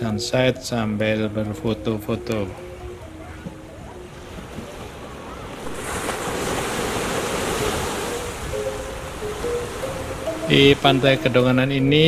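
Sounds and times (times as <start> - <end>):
small waves breaking on beach: 3.7 - 11.4.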